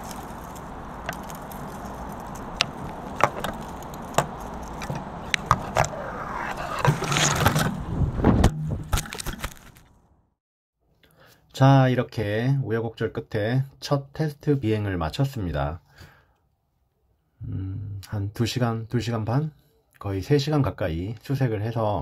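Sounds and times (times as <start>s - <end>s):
rustling hiss of branches: 0.0s - 7.9s
branches knocking and scraping frame: 0.0s - 10.0s.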